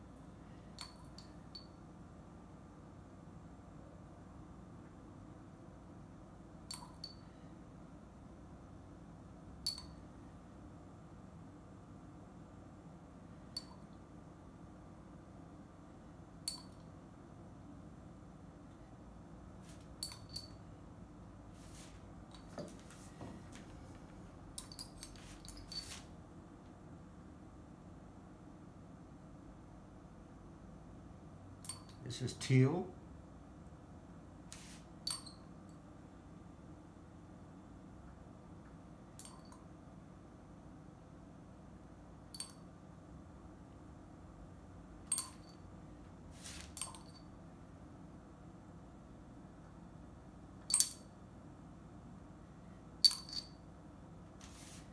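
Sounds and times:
paintbrush clinking on glass jar: 0:00.8 - 0:01.8, 0:09.6 - 0:10.1, 0:16.5 - 0:16.8, 0:19.9 - 0:20.7, 0:24.5 - 0:26.1, 0:31.6 - 0:32.0, 0:35.0 - 0:35.5, 0:39.2 - 0:39.7, 0:42.3 - 0:42.7, 0:45.1 - 0:45.6, 0:46.4 - 0:47.3, 0:53.0 - 0:53.6
tool clinking on glass jars: 0:20.0 - 0:20.6, 0:50.7 - 0:51.0, 0:53.0 - 0:53.6
brush scraping: 0:54.4 - 0:54.9.

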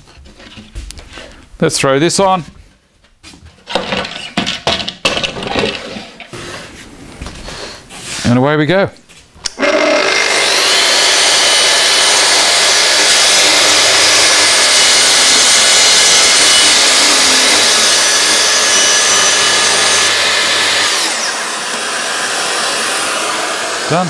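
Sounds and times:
dust extractor running: 0:09.5 - 0:24.0
track saw cutting: 0:09.5 - 0:24.0.

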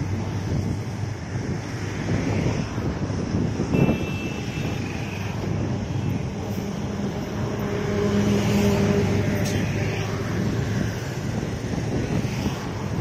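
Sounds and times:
wind on microphone: 0:00.0 - 0:13.0
train rumbling along track: 0:04.7 - 0:13.0.

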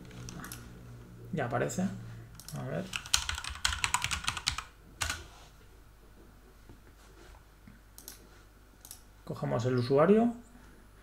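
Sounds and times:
typing on computer keyboard: 0:02.4 - 0:05.2.

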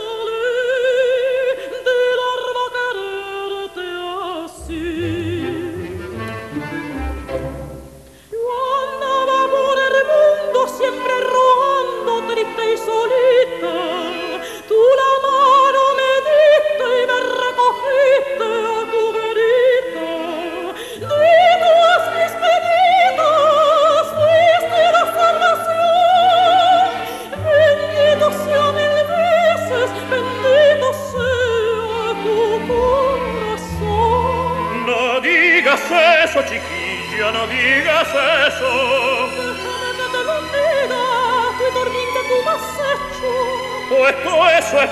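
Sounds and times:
operatic duet singing: 0:00.0 - 0:44.9
orchestral accompaniment: 0:04.6 - 0:08.2, 0:21.1 - 0:44.9.

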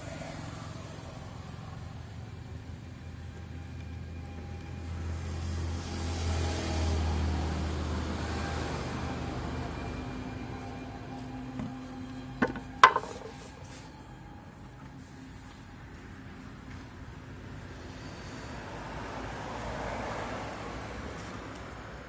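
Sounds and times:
vehicle engine hum: 0:00.0 - 0:22.0
wooden knocks on concrete: 0:12.4 - 0:13.4.

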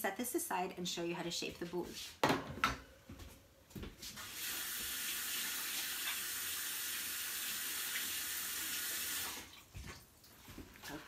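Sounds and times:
tap water running into sink: 0:04.2 - 0:10.0.

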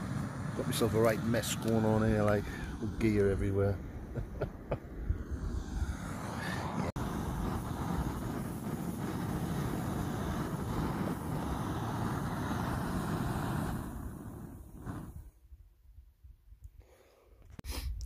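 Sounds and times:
gas camping stove burning: 0:00.0 - 0:15.4
water boiling in pot: 0:07.0 - 0:14.4.

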